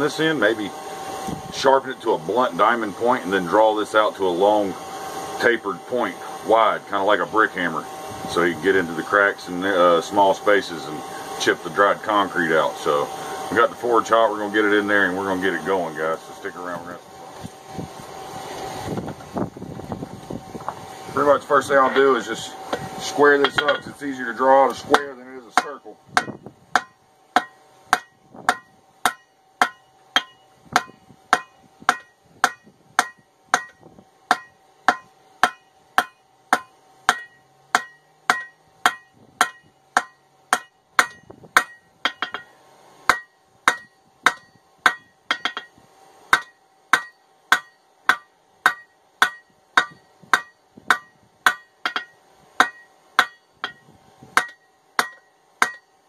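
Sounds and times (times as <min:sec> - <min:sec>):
hammer ringing on hot steel: 0:21.8 - 0:56.0.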